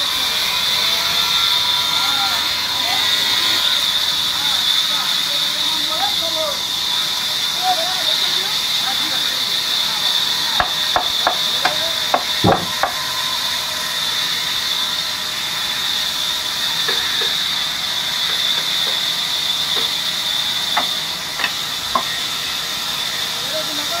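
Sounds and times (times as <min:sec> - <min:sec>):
band saw cutting log: 0:00.0 - 0:24.0
sharp knocks: 0:10.6 - 0:13.0.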